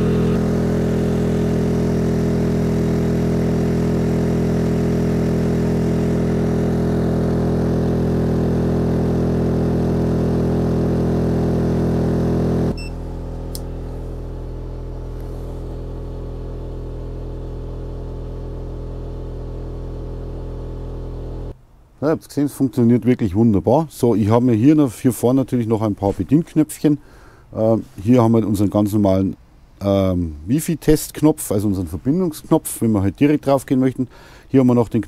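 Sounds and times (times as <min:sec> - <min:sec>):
generator engine running: 0:00.0 - 0:21.6.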